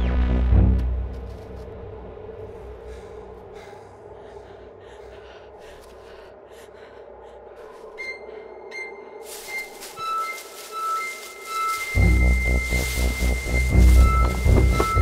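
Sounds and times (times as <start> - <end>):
music: 0.0 - 5.3, 8.0 - 15.0
low steady drone: 0.0 - 15.0
person breathing and gasping: 2.7 - 8.6.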